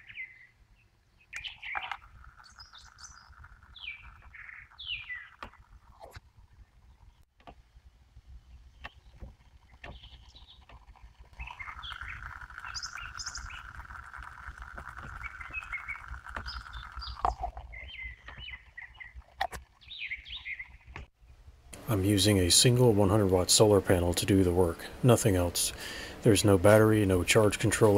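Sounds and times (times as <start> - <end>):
birds chirping: 0.0 - 7.3, 8.4 - 27.9
water heater hissing: 21.8 - 27.9.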